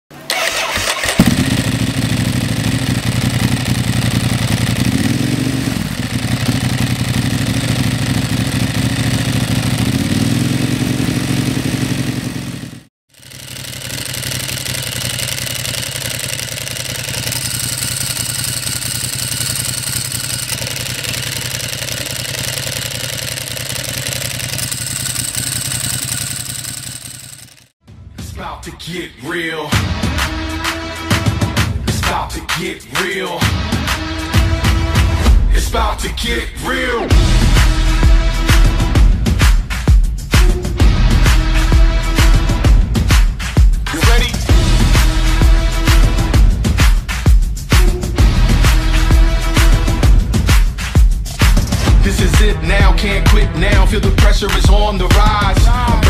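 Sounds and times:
motorcycle engine idling: 0.1 - 27.8, 43.8 - 50.6, 51.7 - 56.0.

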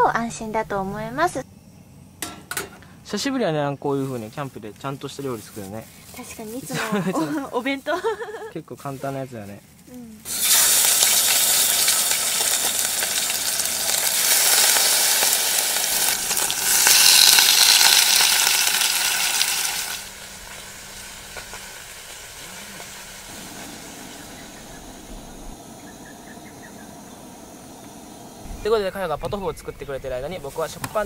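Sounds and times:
meat sizzling in hot oil: 10.3 - 25.3.

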